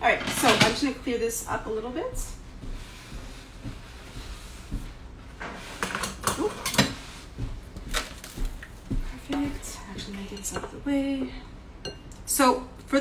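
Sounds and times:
kitchen things knocking and clattering: 0:00.0 - 0:01.0.

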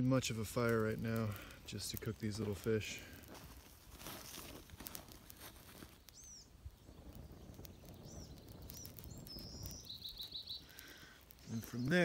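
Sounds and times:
birds chirping: 0:05.1 - 0:12.0.

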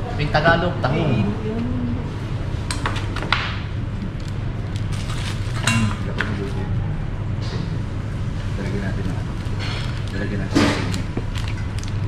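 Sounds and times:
steady low hum: 0:00.0 - 0:12.0
metal pans and plates clinking: 0:05.6 - 0:06.0.

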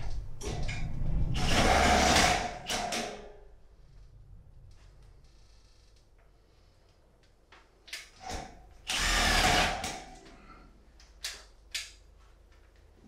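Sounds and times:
power drill running: 0:08.9 - 0:10.0.

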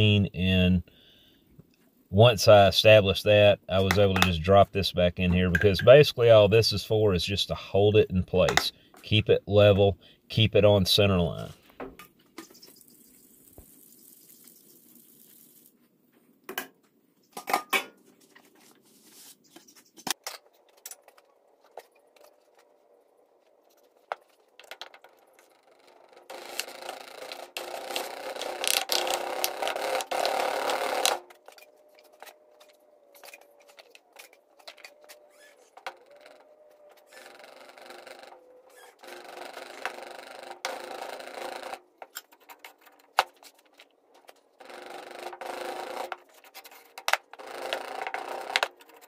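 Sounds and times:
hand tools clicking and knocking: 0:03.8 - 0:04.4.

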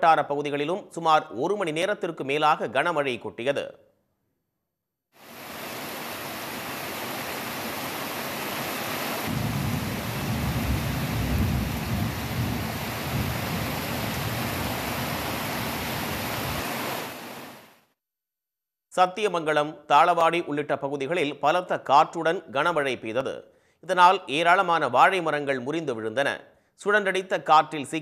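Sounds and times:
heavy rain pouring: 0:05.2 - 0:17.8.

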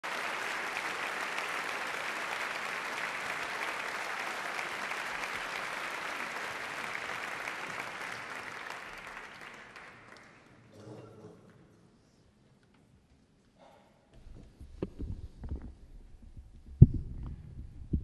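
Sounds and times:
large audience applauding: 0:00.0 - 0:10.7.

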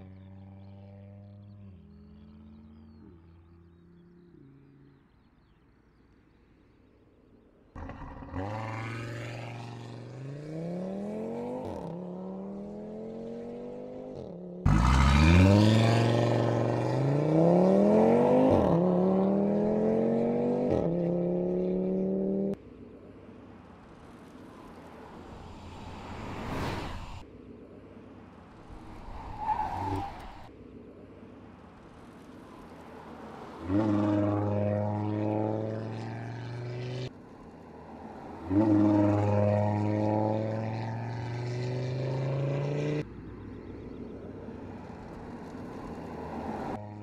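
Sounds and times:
car road noise: 0:07.7 - 0:47.0
car engine accelerating hard: 0:07.8 - 0:13.4, 0:14.7 - 0:22.6.

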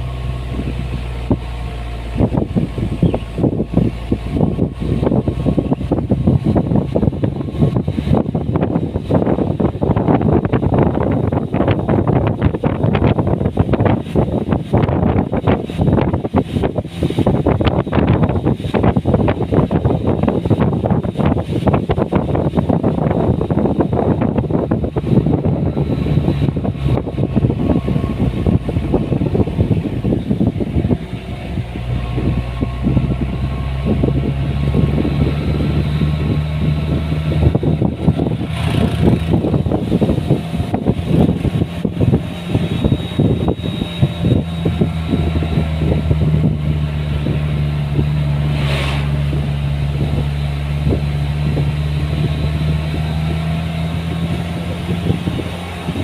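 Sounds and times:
buffeting noise: 0:00.0 - 0:56.0
engine running steadily: 0:00.0 - 0:56.0.

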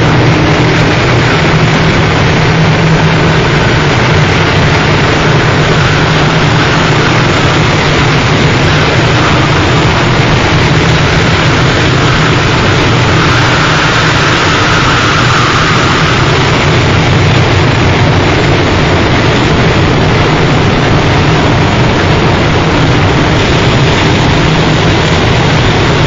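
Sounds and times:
harsh noise music: 0:00.0 - 0:26.0
low hum: 0:00.0 - 0:26.0.

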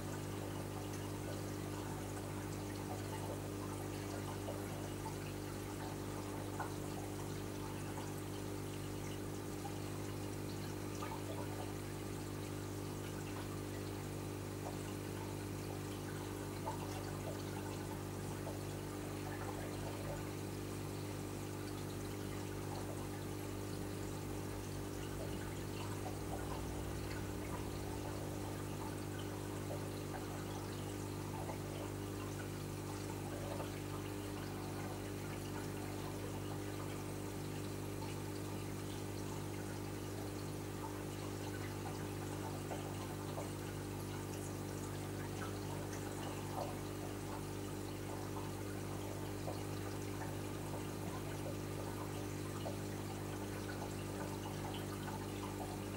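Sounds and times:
pump humming: 0:00.0 - 0:55.9
water trickling: 0:00.0 - 0:55.9.

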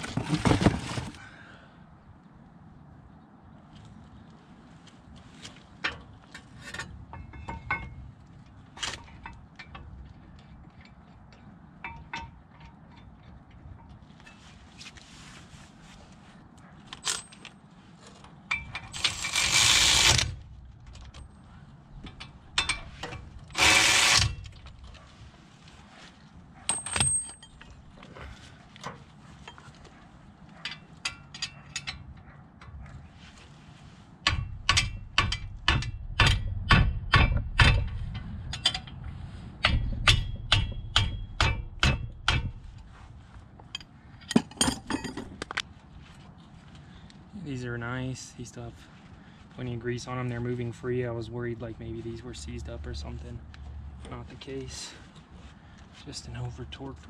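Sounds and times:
electric ratchet running: 0:19.0 - 0:20.3, 0:23.5 - 0:24.4.

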